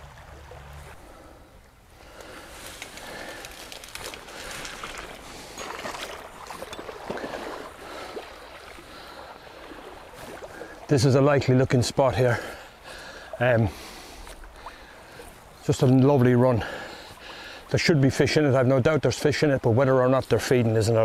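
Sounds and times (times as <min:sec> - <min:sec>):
waders splashing through water: 0:02.3 - 0:18.7.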